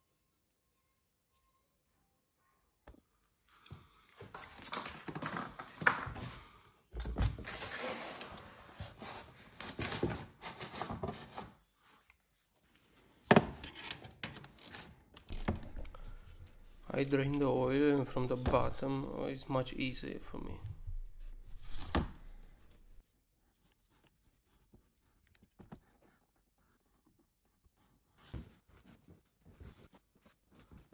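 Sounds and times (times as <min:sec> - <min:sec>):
plastic tub scraping on tiled floor: 0:07.4 - 0:11.4.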